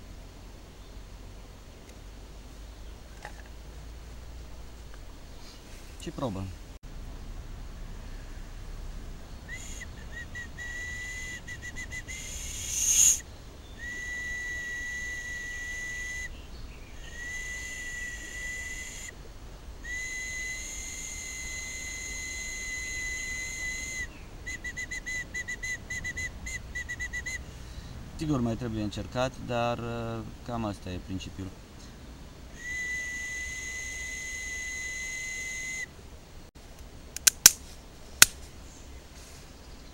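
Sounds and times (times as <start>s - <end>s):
shrill bark whistle toots: 9.5s - 13.2s, 13.8s - 16.3s, 17.1s - 19.1s, 19.9s - 27.4s, 32.6s - 35.9s.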